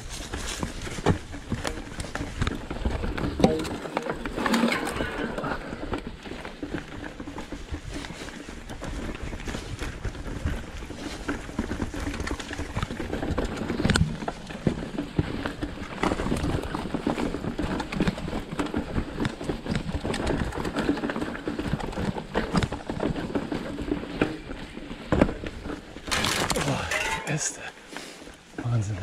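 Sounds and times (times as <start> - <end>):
bike rattling over bumps: 0.0 - 29.0
bike tyres crunching over dirt: 0.0 - 29.0.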